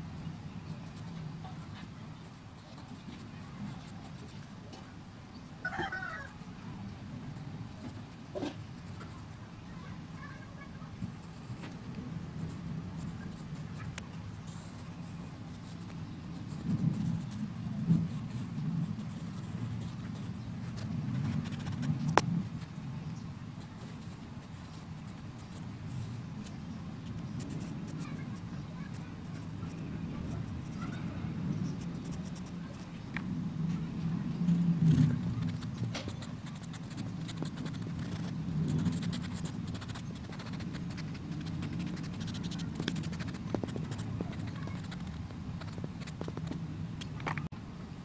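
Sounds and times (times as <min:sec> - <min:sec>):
low background rumble: 0:00.0 - 0:48.0
pencil scratching on paper: 0:12.4 - 0:22.8, 0:23.8 - 0:33.0, 0:34.5 - 0:46.6.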